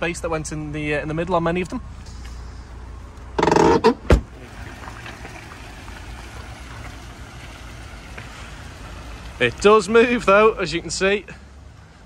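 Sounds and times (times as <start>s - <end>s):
loud squeak: 3.4s - 4.0s
car door shutting: 3.4s - 4.3s
car driving slowly on gravel: 4.2s - 12.0s.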